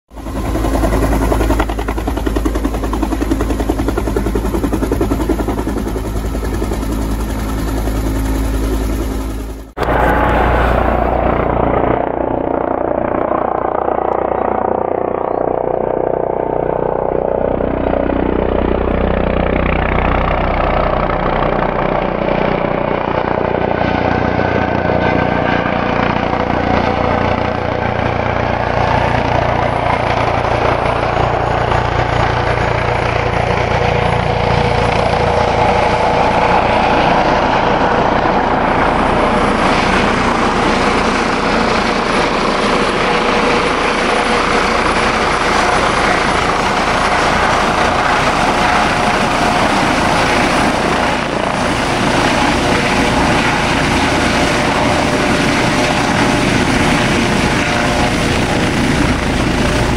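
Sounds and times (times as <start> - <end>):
helicopter approaching in flight: 0.1 - 59.9
helicopter running on ground: 0.1 - 59.9.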